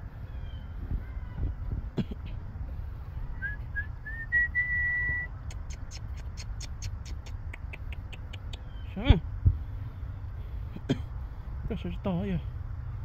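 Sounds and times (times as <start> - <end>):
person whistling: 3.4 - 5.3.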